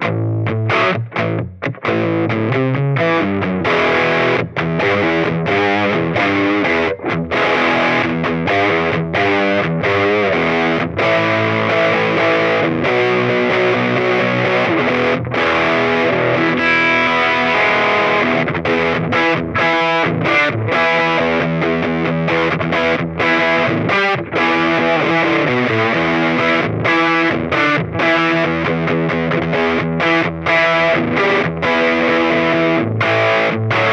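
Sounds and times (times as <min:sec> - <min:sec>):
overdriven electric guitar riff: 0:00.0 - 0:33.9.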